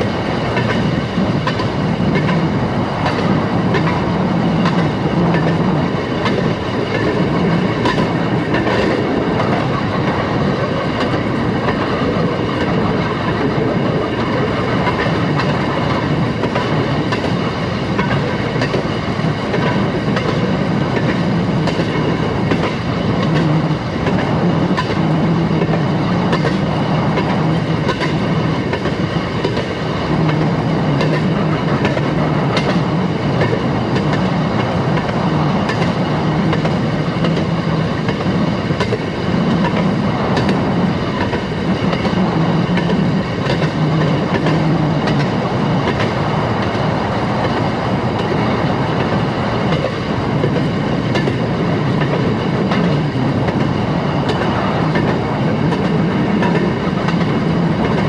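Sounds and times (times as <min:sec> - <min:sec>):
wheels clicking over rail joints: 0:00.3 - 0:46.7, 0:49.0 - 0:58.0.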